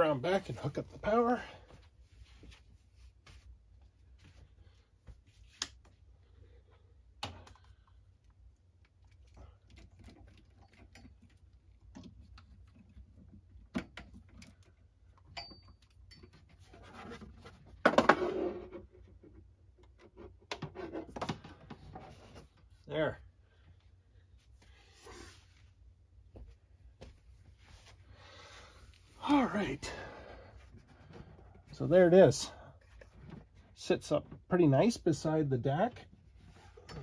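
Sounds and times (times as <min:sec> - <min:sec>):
clicks and knocks of handling cables: 0:07.2 - 0:18.1.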